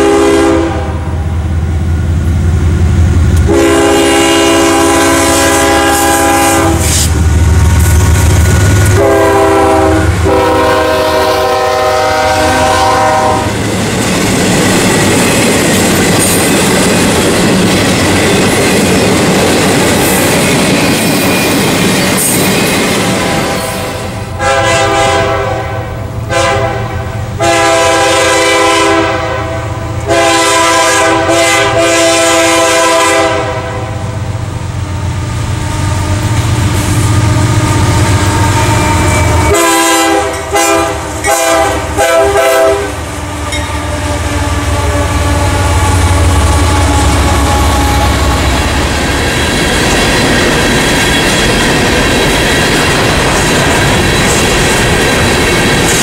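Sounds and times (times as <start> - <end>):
locomotive air horn blasts: 0.0 - 1.1, 3.4 - 7.1, 8.9 - 13.6, 23.2 - 34.2, 37.2 - 48.5
locomotive engines rumbling: 0.0 - 56.0
train wheels clattering on rails: 6.8 - 24.3, 42.9 - 56.0.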